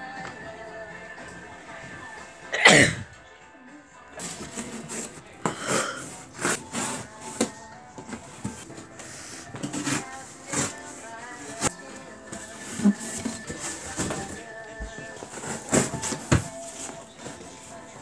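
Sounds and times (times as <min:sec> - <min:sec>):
background music: 0:00.0 - 0:18.0
camera rubbing against plush toys: 0:04.2 - 0:05.4, 0:06.0 - 0:18.0.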